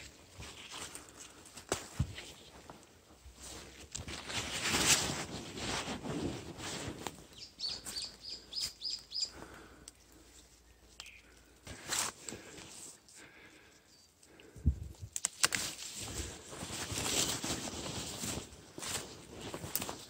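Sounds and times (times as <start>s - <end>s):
small bird chirping: 7.3s - 9.4s, 10.6s - 11.4s
dry leaves rustling and crunching: 15.2s - 20.0s.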